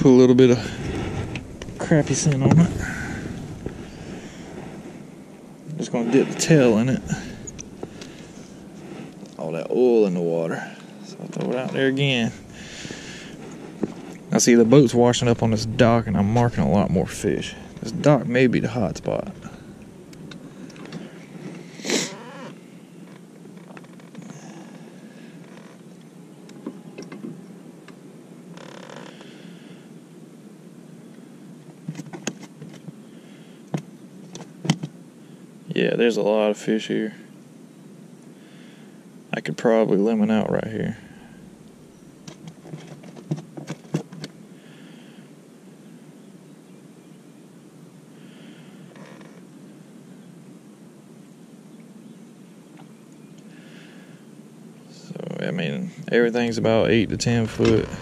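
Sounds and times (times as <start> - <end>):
electric trolling motor humming: 0.0 - 9.4
low steady background: 0.0 - 58.0.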